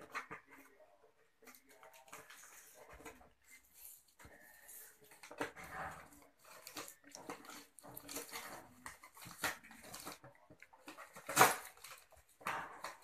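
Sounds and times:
paper and cardboard rustling: 0:00.0 - 0:13.0
cardboard tearing: 0:06.4 - 0:12.2.

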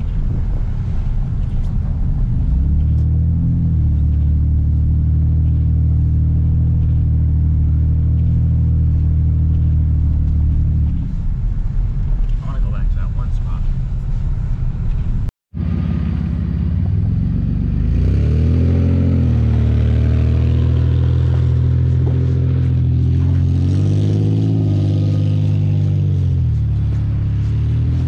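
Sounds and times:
truck engine revving: 0:01.8 - 0:11.4, 0:15.6 - 0:28.0.

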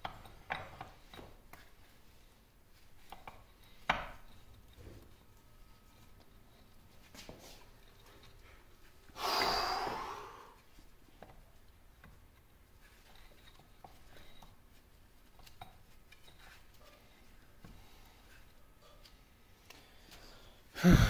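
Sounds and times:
faint clicks and metal knocks: 0:00.0 - 0:09.0, 0:10.6 - 0:20.2
person exhaling close to microphone: 0:09.2 - 0:10.6, 0:20.8 - 0:21.0.

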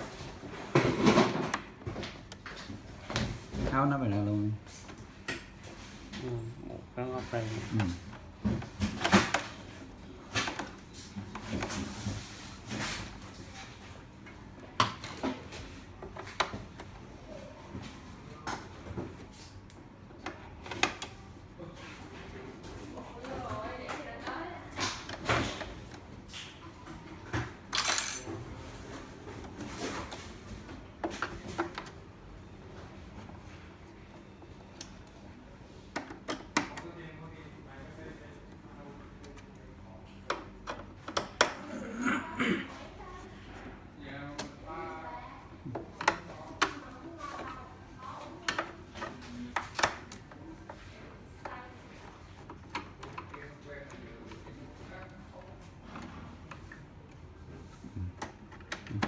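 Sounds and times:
plastic parts clicking and knocking: 0:58.1 - 0:59.0.

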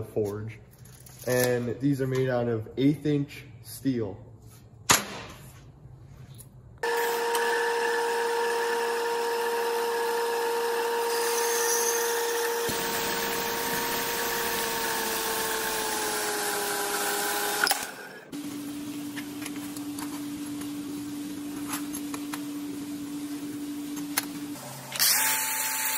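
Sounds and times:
bandsaw cutting steel: 0:06.8 - 0:18.3, 0:24.9 - 0:25.9.

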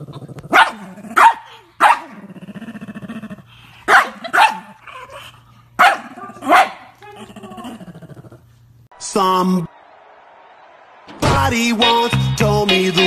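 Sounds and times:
dog growling: 0:00.0 - 0:03.6, 0:06.0 - 0:08.5
dog barking: 0:00.5 - 0:02.2, 0:03.9 - 0:04.8, 0:05.8 - 0:07.0.

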